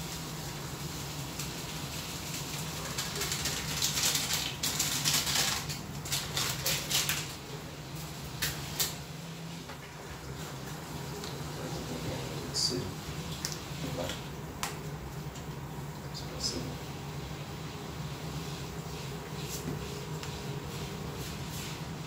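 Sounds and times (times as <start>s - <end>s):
broth simmering: 7.2s - 22.0s.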